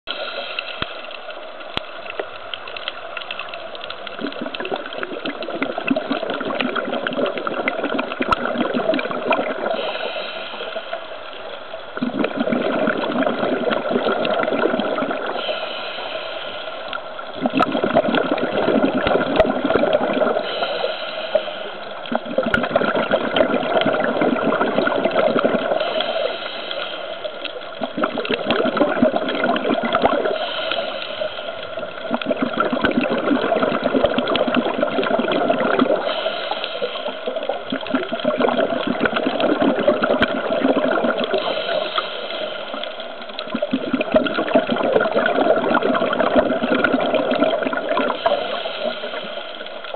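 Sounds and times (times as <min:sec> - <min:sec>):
regulator exhale bubbles: 0:00.1 - 0:01.4, 0:03.2 - 0:49.9
regulator inhale hiss: 0:00.1 - 0:01.8, 0:08.9 - 0:12.0, 0:15.0 - 0:17.3, 0:20.1 - 0:22.2, 0:24.0 - 0:28.5, 0:30.0 - 0:32.2, 0:35.5 - 0:40.4, 0:41.1 - 0:44.6, 0:47.7 - 0:49.9.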